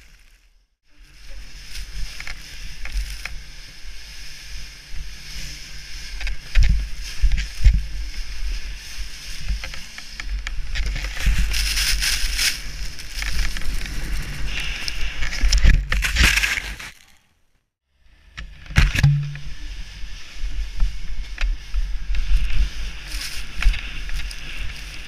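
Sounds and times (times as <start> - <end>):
snow spray hiss: 1.0 - 10.1.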